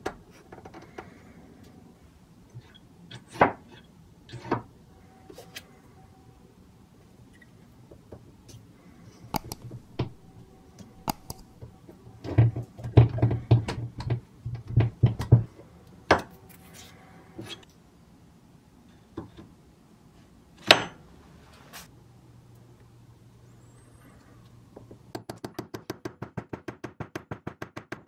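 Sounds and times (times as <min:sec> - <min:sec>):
hammer parts clicking and knocking: 0:09.3 - 0:11.7.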